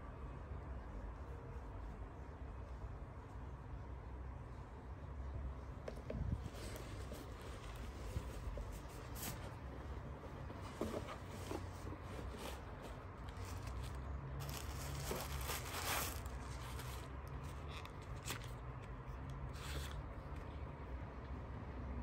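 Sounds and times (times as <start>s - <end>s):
cloth and tissue paper rustling: 6.3s - 20.4s.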